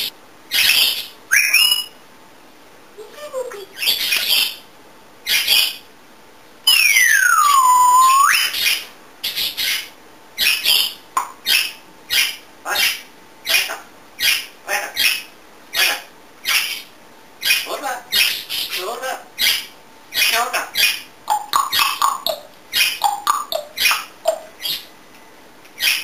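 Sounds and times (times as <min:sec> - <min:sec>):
parrot squawking: 0:00.0 - 0:02.0, 0:03.5 - 0:04.6, 0:05.3 - 0:05.8, 0:06.7 - 0:24.9, 0:25.8 - 0:26.0
parrot sliding whistle: 0:01.3 - 0:01.9, 0:06.7 - 0:08.6.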